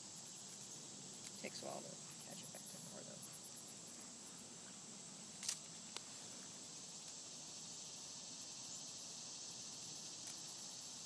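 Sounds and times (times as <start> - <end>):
high-pitched insect chorus: 0.0 - 11.0
small click: 5.4 - 6.1.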